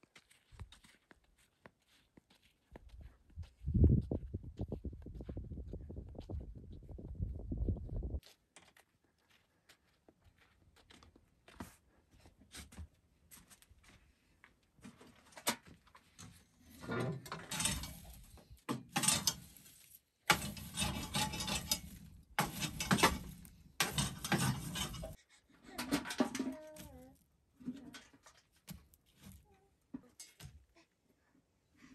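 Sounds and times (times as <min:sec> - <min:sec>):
metal poker raking coals: 0:16.6 - 0:25.2.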